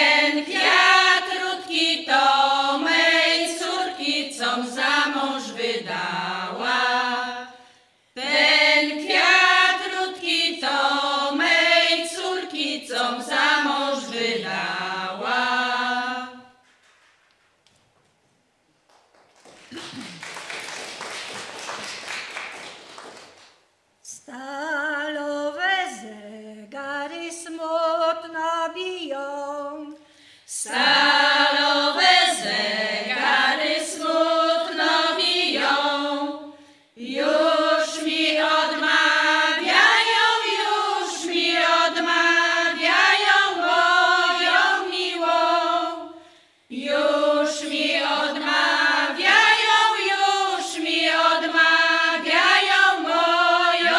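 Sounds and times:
women's choir singing unaccompanied: 0.0 - 16.6, 30.5 - 53.9
background noise: 0.0 - 53.9.

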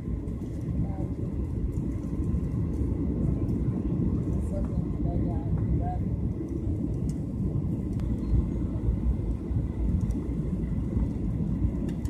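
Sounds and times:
jet airliner cabin rumble: 0.0 - 12.0.

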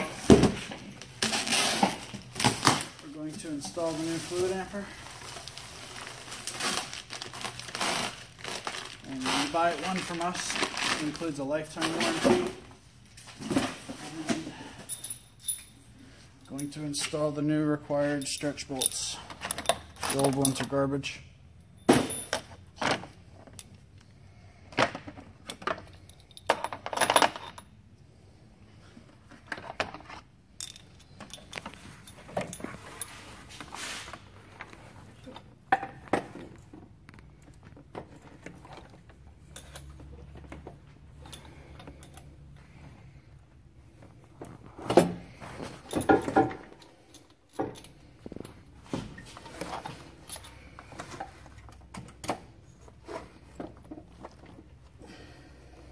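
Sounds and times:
metallic clinks of bolts: 14.9 - 15.8, 30.6 - 33.2.

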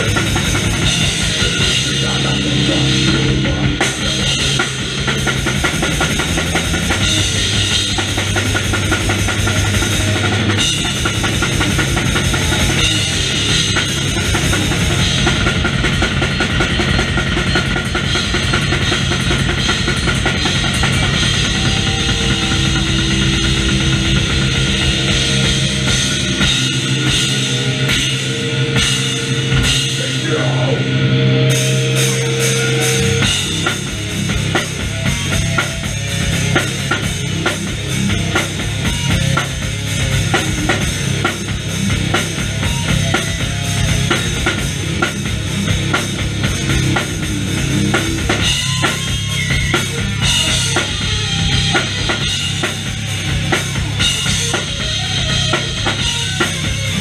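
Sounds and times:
bass drum: 0.0 - 28.2, 33.0 - 57.0
live metal band playing: 0.0 - 57.0.

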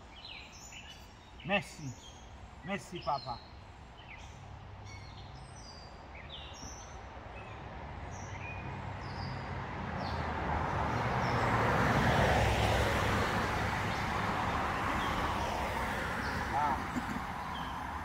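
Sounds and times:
birds chirping: 0.0 - 11.7, 12.8 - 18.0
vehicle passing on a road: 4.2 - 18.0.

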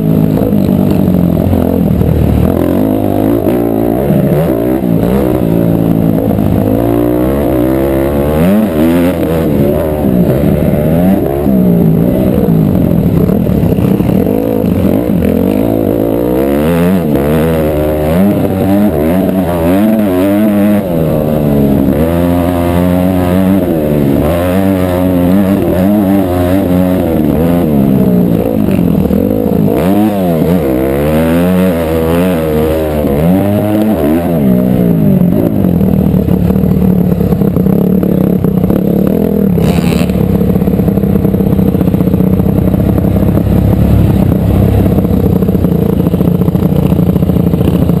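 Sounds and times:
motocross bike engine revving: 0.0 - 48.0.

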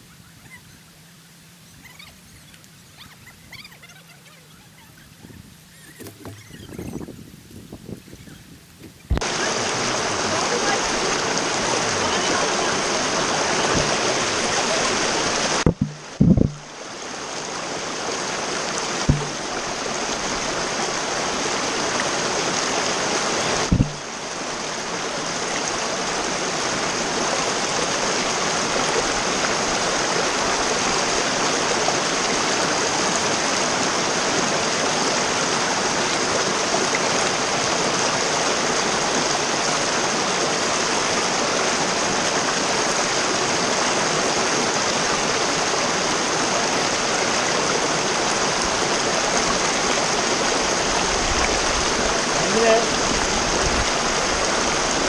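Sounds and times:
stream rushing over rocks: 0.9 - 55.0
sharp knock: 15.6 - 16.6, 19.1 - 19.4, 23.7 - 24.0.

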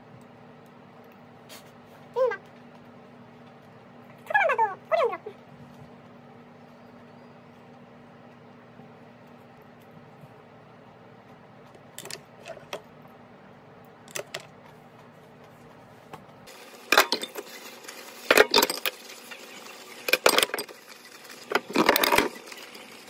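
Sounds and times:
pot lids and cookware clanking: 16.9 - 17.5, 18.2 - 19.0, 20.0 - 20.8.

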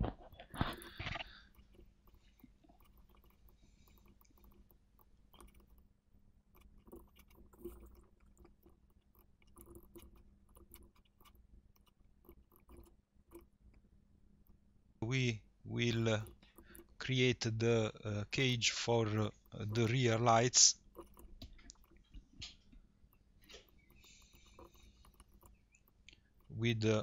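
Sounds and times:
faint low hum: 0.0 - 27.0
faint clicks: 15.8 - 27.0.

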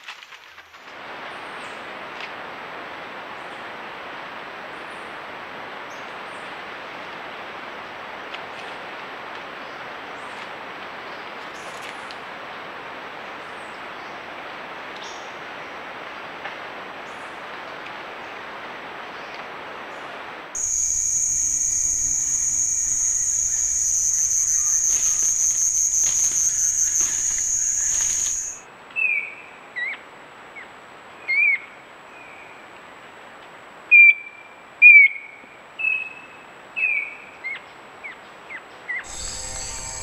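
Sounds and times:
bird whistling: 20.6 - 28.6, 39.1 - 40.0
high-pitched insect drone: 20.6 - 28.6, 39.1 - 40.0.

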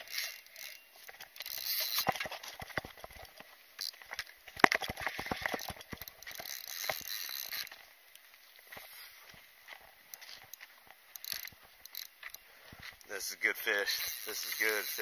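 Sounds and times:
fishing reel clicks and knocks: 0.0 - 7.8, 10.1 - 12.4, 13.7 - 15.0.

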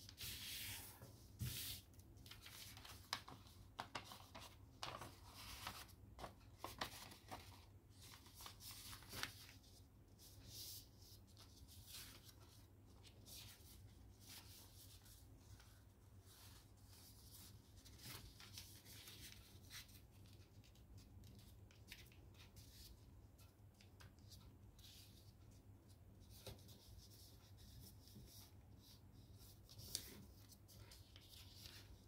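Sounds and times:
paper rustling and crackling: 0.4 - 9.7.

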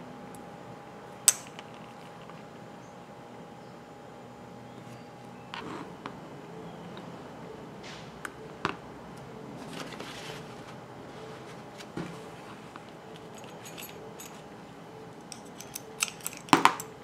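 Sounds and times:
light clicks and metal clinks: 12.8 - 14.5, 15.2 - 17.0.

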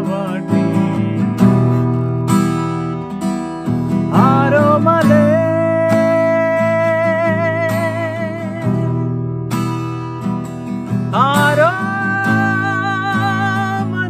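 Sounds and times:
man singing: 0.0 - 2.1, 3.9 - 9.2, 10.9 - 14.0
acoustic guitar strumming: 0.0 - 14.0.

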